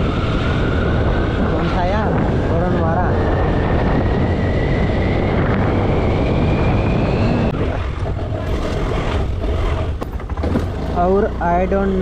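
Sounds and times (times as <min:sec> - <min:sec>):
wind rush on microphone: 0:00.0 - 0:12.0
scooter engine whining: 0:03.3 - 0:12.0.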